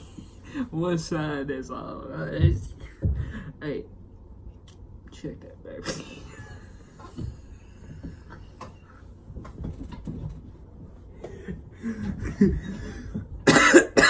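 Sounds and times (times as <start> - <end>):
man laughing quietly: 5.8 - 8.3, 11.2 - 13.4
knocks and rustles: 7.0 - 13.4.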